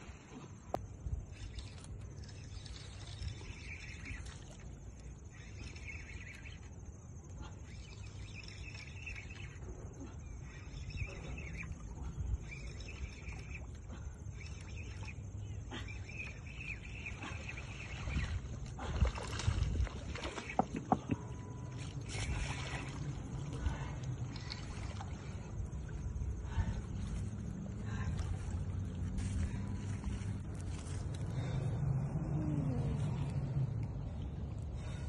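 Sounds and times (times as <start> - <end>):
low outdoor rumble: 0.0 - 35.0
fish splashing in water: 16.9 - 25.7.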